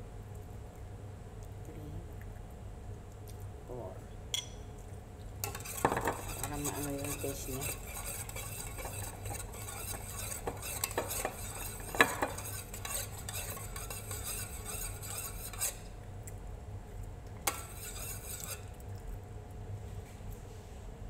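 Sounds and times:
spoon clinking on pot: 5.4 - 15.7
spoon stirring in metal pot: 5.4 - 16.0, 17.4 - 18.8.

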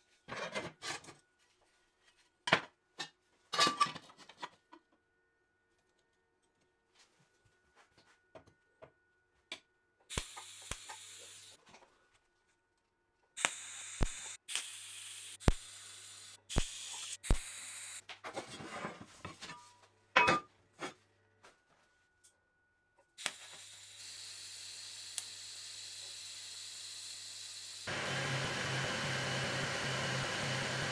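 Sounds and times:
low welder hum: 10.1 - 11.6, 13.4 - 18.0, 23.1 - 30.9
welding arc hissing: 10.1 - 11.6, 13.4 - 18.0, 23.2 - 30.9.

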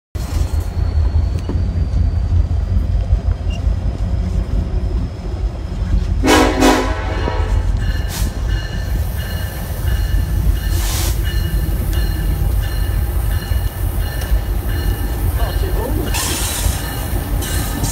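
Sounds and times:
locomotive low rumble: 0.2 - 17.9
short horn blasts: 6.2 - 7.7.

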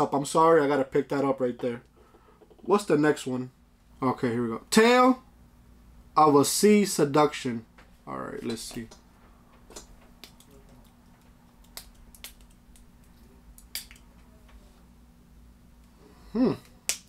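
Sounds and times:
faint steady hum: 0.0 - 17.0
man humming: 16.1 - 16.8.

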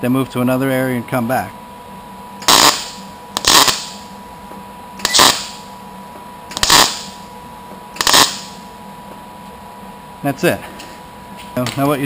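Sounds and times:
welder arc bursts: 2.4 - 4.2, 5.0 - 5.8, 6.5 - 7.3, 8.0 - 8.7.

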